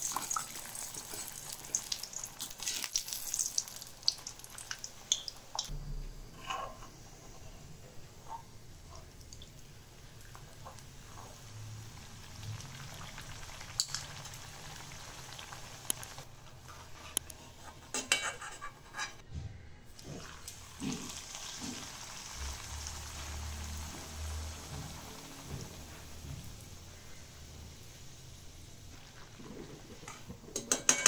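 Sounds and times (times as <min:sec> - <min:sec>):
food sizzling in hot oil: 0:00.0 - 0:05.7, 0:09.4 - 0:16.3, 0:20.0 - 0:29.7
metal spoon clinking on wok: 0:30.6 - 0:31.0.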